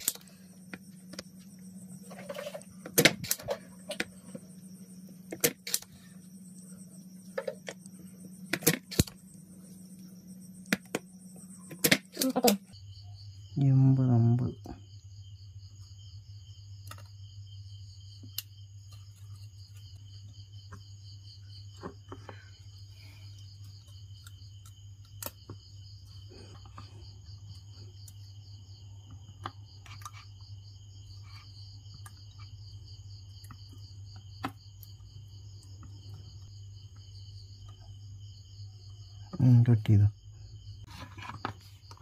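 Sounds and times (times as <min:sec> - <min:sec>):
low hum: 0:00.0 - 0:13.2
crickets chirping: 0:00.0 - 0:42.0.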